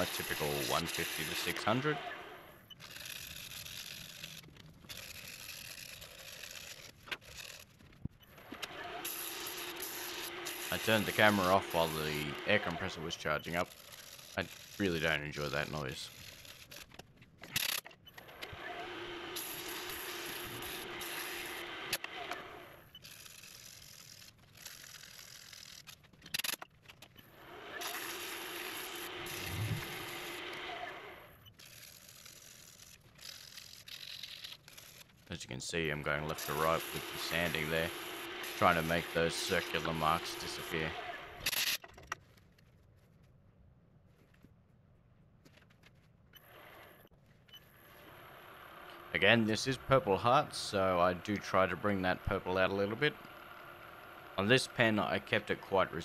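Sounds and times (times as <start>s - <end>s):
wood lathe humming: 0.0s - 2.3s, 8.9s - 13.0s, 18.5s - 22.7s, 27.5s - 31.2s, 36.1s - 41.4s
sandpaper on spinning wood: 36.3s - 41.0s.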